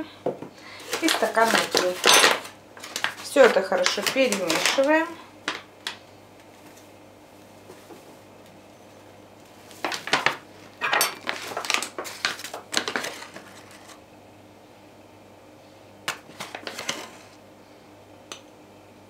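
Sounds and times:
glass and bowl clinking: 10.8 - 11.2.

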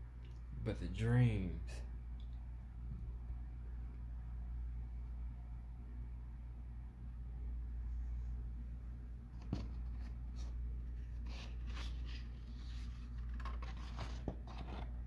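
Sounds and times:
steady low hum: 0.0 - 15.0
paper sheets rustling and sliding: 9.4 - 15.0.

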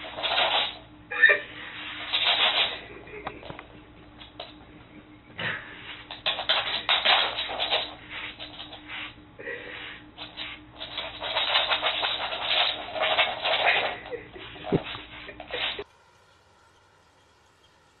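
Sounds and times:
dog scrabbling on hardwood floor: 0.0 - 0.8, 2.0 - 2.8, 6.0 - 9.1, 10.2 - 15.8.

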